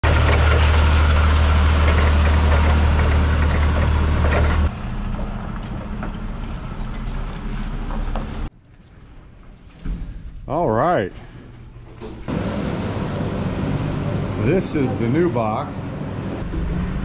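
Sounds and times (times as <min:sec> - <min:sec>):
heavy vehicle engine rumbling: 0:00.0 - 0:08.5, 0:12.2 - 0:17.0.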